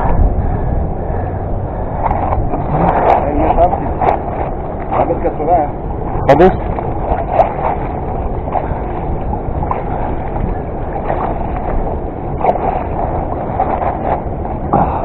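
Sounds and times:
steady rushing noise: 0.0 - 15.0
fish splashing at surface: 6.5 - 15.0.

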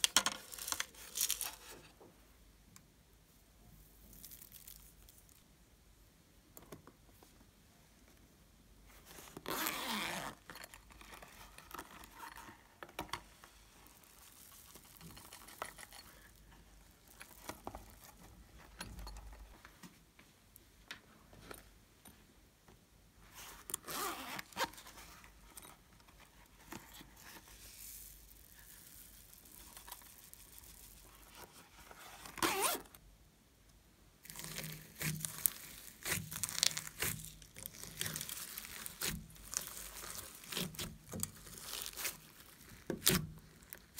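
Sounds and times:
zipper being pulled: 9.4 - 11.0, 23.8 - 24.8, 31.9 - 33.0
foam beads crunching: 27.6 - 31.1, 34.2 - 43.9.

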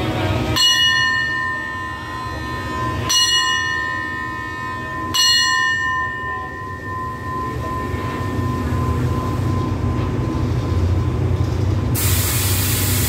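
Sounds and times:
hand bell ringing: 0.6 - 9.8.

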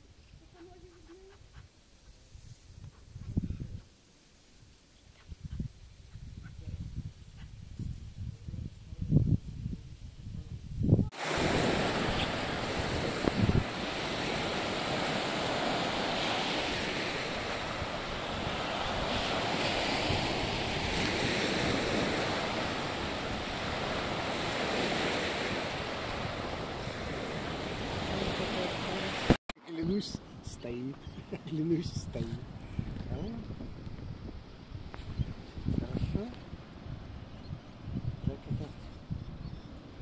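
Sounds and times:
wind buffeting microphone: 0.3 - 3.9, 5.2 - 29.4, 30.6 - 40.0
waves washing onto beach: 11.1 - 29.4.

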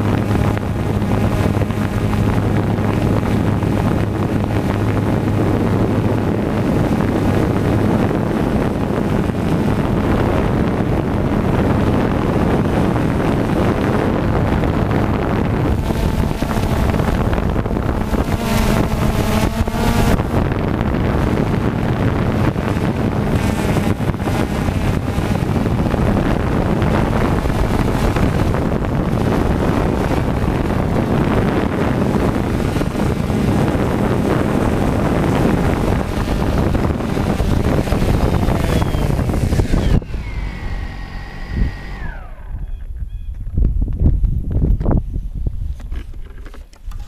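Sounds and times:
motors spinning down whine: 0.0 - 43.4
drone motors and propellers: 0.0 - 47.0
wind buffeting microphone: 0.0 - 47.0.

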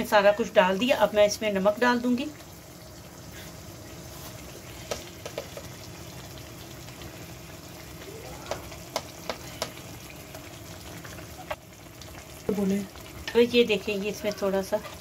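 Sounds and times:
food sizzling in oil: 0.0 - 15.0
oil popping: 4.4 - 13.5.

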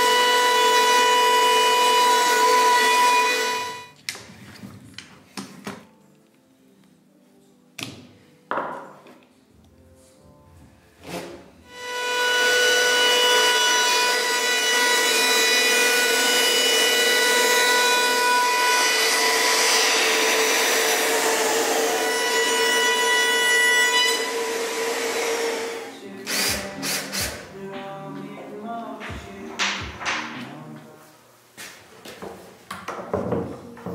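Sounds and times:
wood router whining: 0.0 - 3.9, 11.7 - 27.4
drill boring into wood: 24.2 - 27.3.

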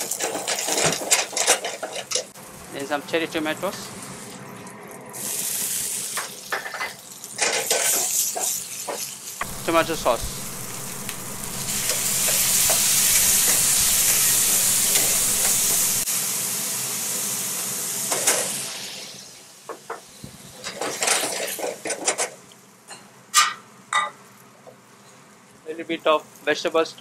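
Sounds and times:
sauce sizzling in a frying pan: 3.7 - 20.2.

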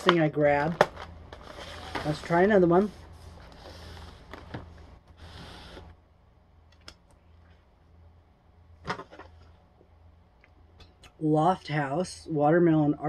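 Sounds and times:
food packaging rustling: 0.0 - 2.5.

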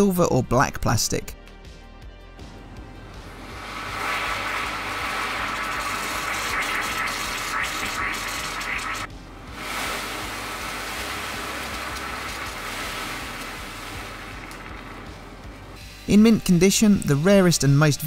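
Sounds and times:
pearls fizzing in water: 3.4 - 15.8.

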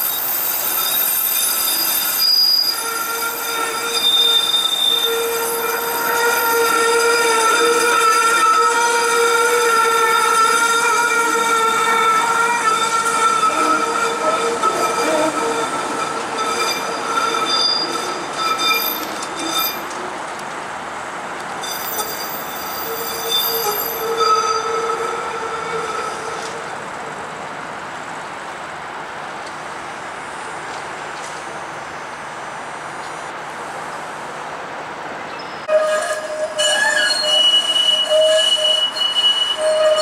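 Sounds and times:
streetcar wheels squealing: 0.0 - 20.2, 21.5 - 27.2, 35.3 - 40.0
streetcar rolling noise: 0.0 - 40.0.

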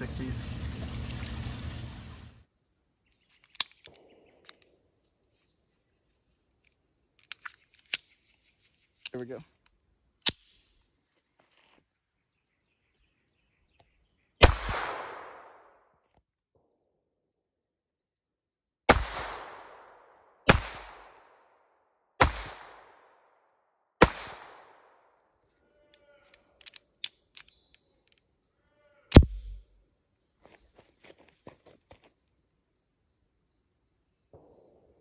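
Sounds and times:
pistol shots echoing: 14.4 - 15.6, 18.9 - 19.9, 20.5 - 21.2, 22.2 - 23.0, 24.0 - 24.8, 29.2 - 29.6.

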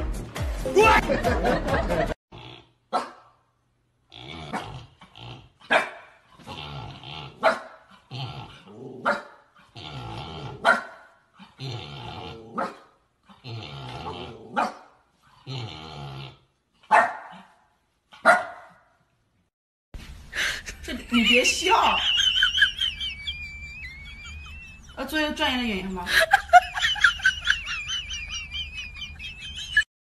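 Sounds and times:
dog sharp bark: 2.9 - 3.3, 5.7 - 6.1, 9.0 - 9.4, 10.6 - 11.1, 16.9 - 17.5, 18.2 - 18.8
dog growling: 4.1 - 5.7, 6.3 - 16.6.

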